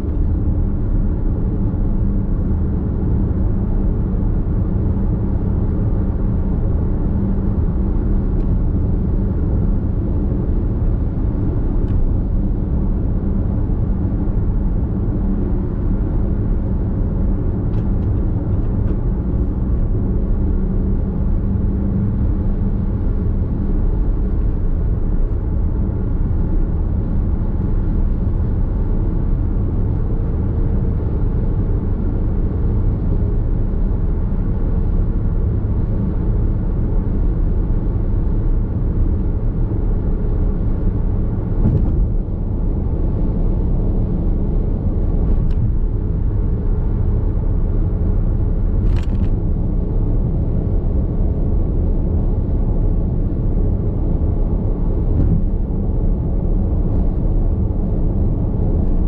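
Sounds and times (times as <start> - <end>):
road and tyre noise: 0.0 - 59.0.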